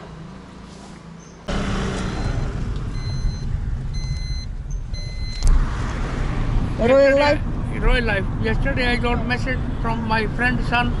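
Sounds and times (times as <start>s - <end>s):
road and engine rumble: 0.0s - 11.0s
street background: 0.0s - 11.0s
short electronic beeps: 2.1s - 5.5s.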